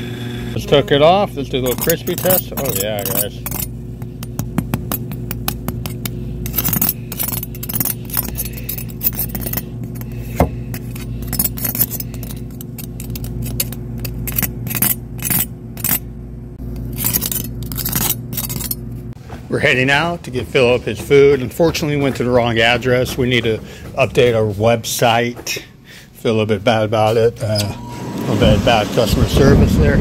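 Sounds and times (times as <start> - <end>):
low hum: 0.0 - 19.2.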